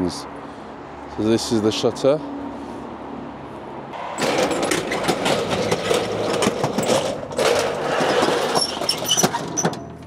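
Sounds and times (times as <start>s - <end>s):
metal roller shutter rattling: 4.0s - 10.0s.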